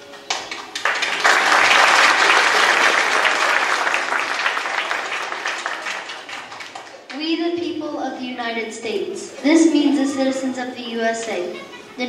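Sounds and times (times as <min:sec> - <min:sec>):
crowd applauding: 0:00.3 - 0:07.1.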